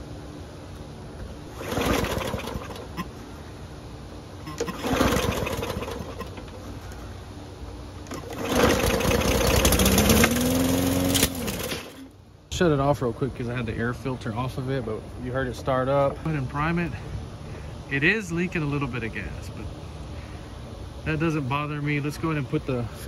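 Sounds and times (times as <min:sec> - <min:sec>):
lawn mower engine starting and running: 0:00.7 - 0:03.6, 0:04.2 - 0:12.6.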